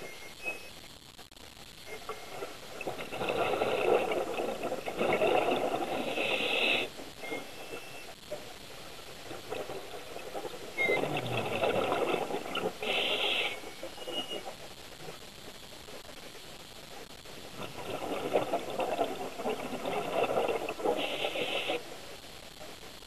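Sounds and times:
regulator hiss: 0.0s - 23.0s
diver exhaling bubbles underwater: 2.0s - 7.8s, 9.2s - 14.3s, 17.5s - 21.8s.

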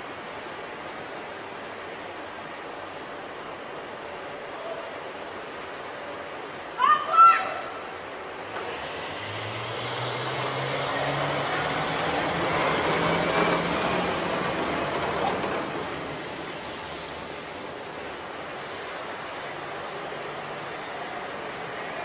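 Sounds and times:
water rushing and splashing: 0.0s - 22.0s
diesel engine drone: 8.4s - 16.7s.

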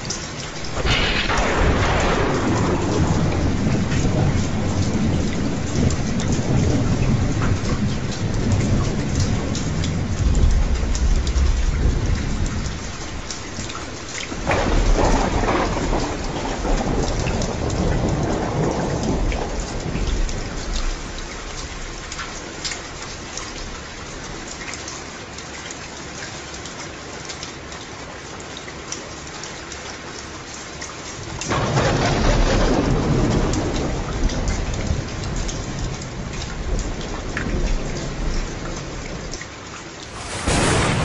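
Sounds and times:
rain drops patting: 0.0s - 41.0s
rolling thunder: 0.6s - 22.3s, 31.5s - 39.3s, 40.0s - 41.0s
thunderclap: 0.6s - 22.3s, 31.5s - 39.3s, 40.0s - 41.0s.

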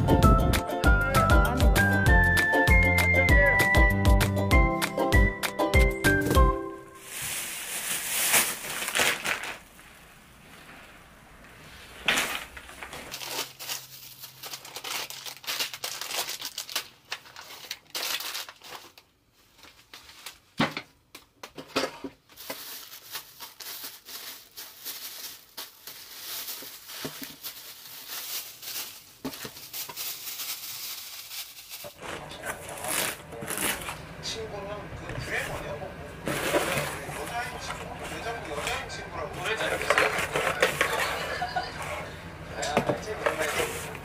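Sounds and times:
wrapping crinkling and rustling: 6.9s - 11.1s, 11.9s - 20.6s, 22.1s - 34.1s, 36.2s - 41.9s.

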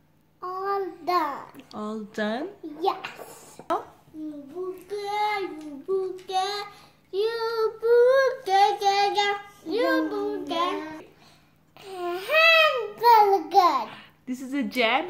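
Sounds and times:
girl singing: 4.6s - 11.1s.

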